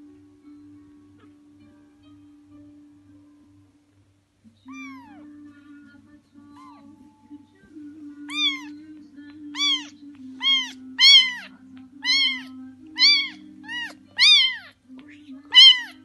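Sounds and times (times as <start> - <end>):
kitten meowing: 4.6 - 5.3, 8.3 - 8.8, 9.5 - 14.8, 15.5 - 16.0.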